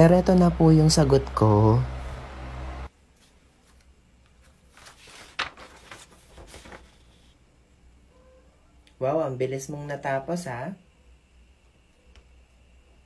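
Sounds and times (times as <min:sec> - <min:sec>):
low hum: 0:00.0 - 0:02.9.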